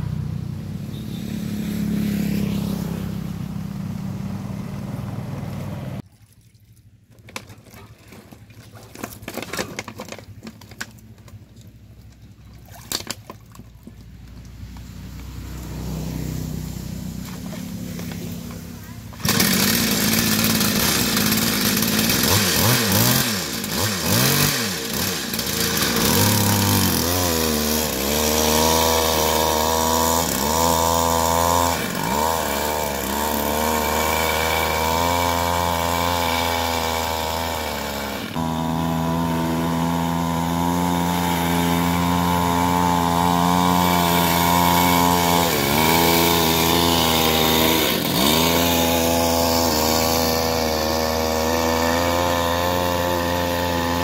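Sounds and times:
chainsaw engine revving: 1.0s - 3.5s, 14.6s - 54.0s.

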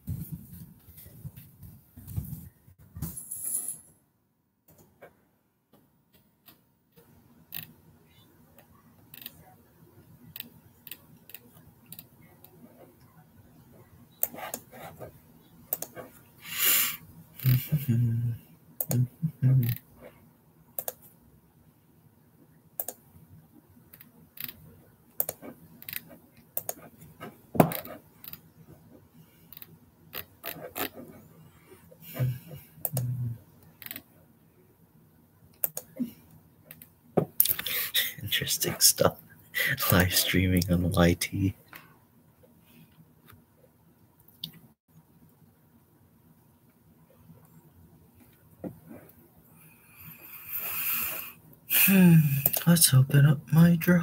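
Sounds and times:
keyboard typing: 15.7s - 16.0s, 20.8s - 21.0s, 25.2s - 26.9s, 35.6s - 35.9s.

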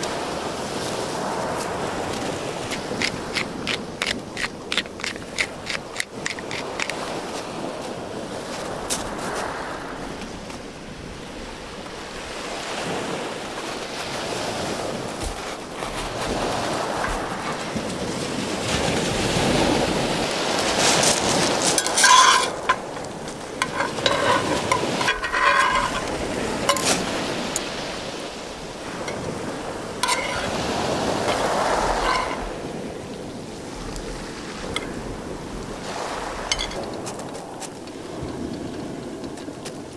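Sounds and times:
waves washing over shingle: 0.0s - 39.9s
tongs clinking on metal pan: 21.8s - 27.6s, 30.0s - 30.5s, 32.0s - 32.4s.

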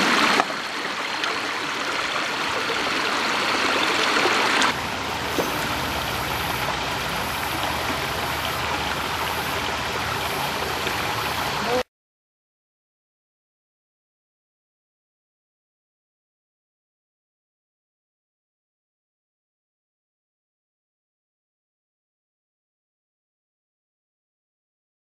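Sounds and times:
creek water running over rocks: 0.0s - 11.8s
low rumble: 4.7s - 11.2s.

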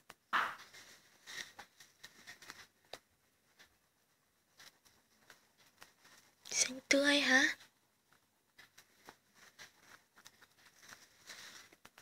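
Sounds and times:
paper rustle: 0.6s - 3.8s, 8.1s - 12.0s.

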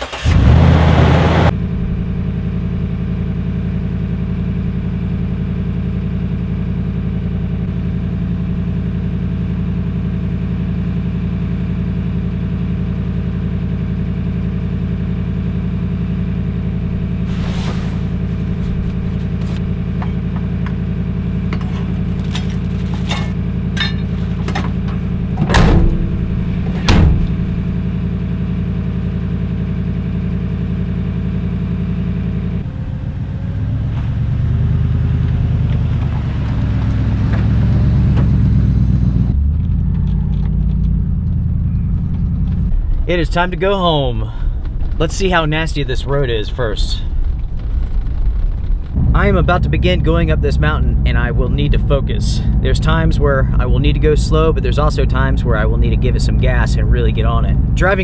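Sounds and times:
truck engine idling: 0.0s - 58.0s
loud thumps: 16.8s - 28.2s, 39.4s - 52.7s.

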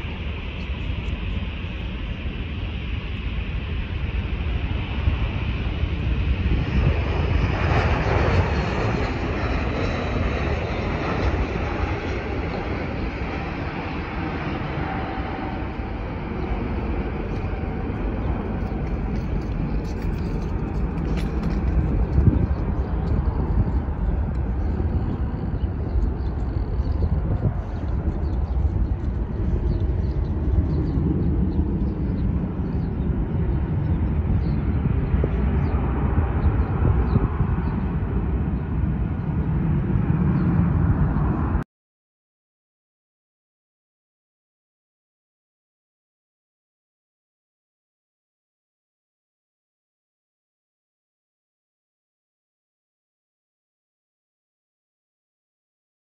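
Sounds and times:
jet engines roaring drone: 0.0s - 41.6s
wind buffeting microphone: 0.0s - 41.6s.

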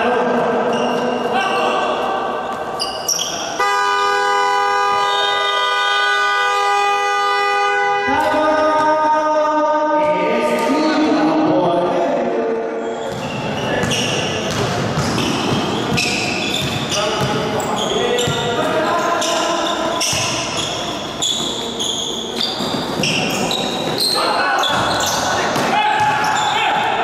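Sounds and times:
basketball buzzer horn: 3.6s - 8.2s
ball bouncing on court: 13.1s - 19.3s, 20.0s - 26.5s.

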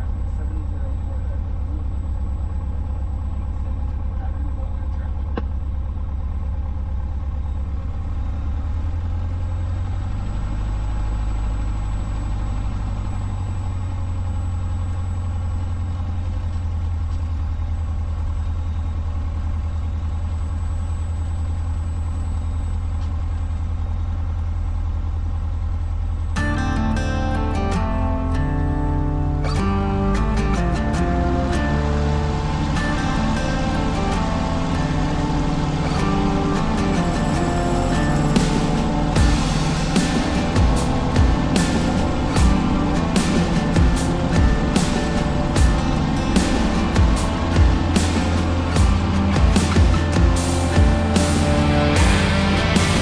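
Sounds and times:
aircraft engine and propeller: 25.5s - 53.0s.

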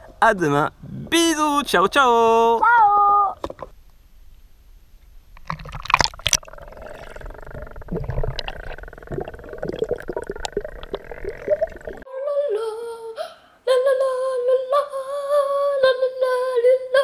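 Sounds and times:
muffled underwater gurgling: 5.4s - 12.0s.

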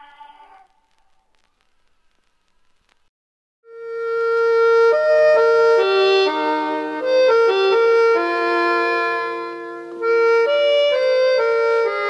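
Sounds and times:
reedy wind instrument melody: 3.7s - 12.0s.

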